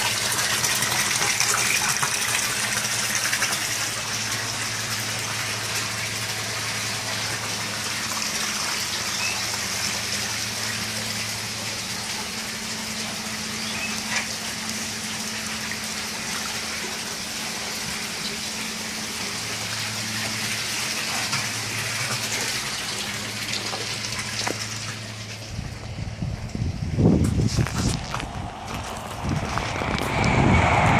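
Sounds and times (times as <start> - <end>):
water pouring into a tank: 0.0 - 25.9, 26.8 - 30.9
water pump humming: 0.0 - 30.9.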